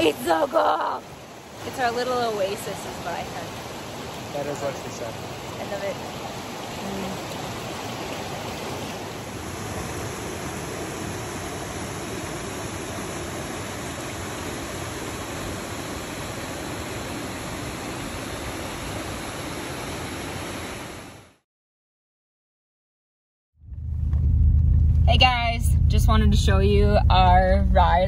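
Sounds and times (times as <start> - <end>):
creek water rushing over rocks: 0.0 - 21.1.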